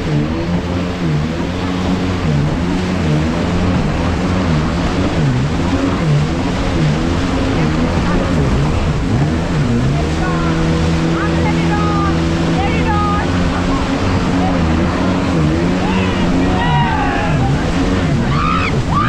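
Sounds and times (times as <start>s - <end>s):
jet ski engine running: 0.0s - 19.0s
rush of spray and wind: 0.0s - 19.0s.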